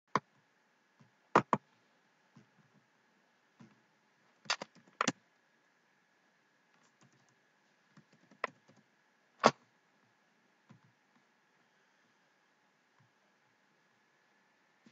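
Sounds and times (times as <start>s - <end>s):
computer mouse and keyboard clicks: 6.8s - 8.8s.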